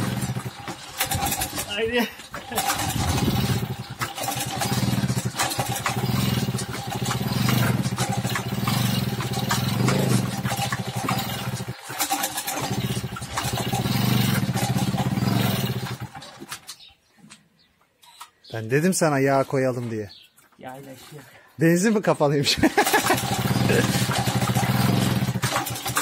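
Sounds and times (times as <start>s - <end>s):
moped engine chugging: 0.0s - 16.5s, 22.4s - 26.0s.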